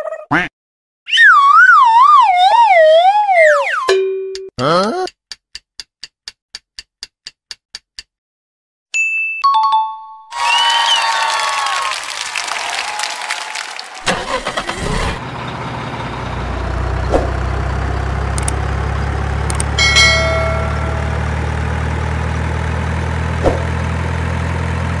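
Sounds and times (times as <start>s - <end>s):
excavator engine starting and idling: 13.6s - 25.0s
short higher tone: 19.8s - 22.2s.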